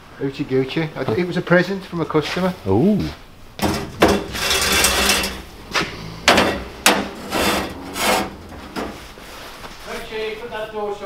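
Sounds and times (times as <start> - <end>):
faint low hum: 2.6 - 11.0
metal clanks and scrapes on grate: 3.6 - 9.1.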